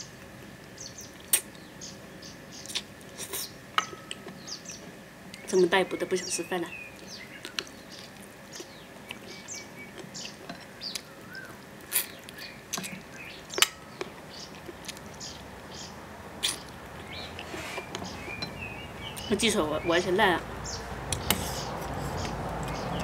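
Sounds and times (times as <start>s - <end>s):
small birds chirping: 0.7s - 23.0s
person chewing and smacking: 7.0s - 15.3s, 21.1s - 23.0s.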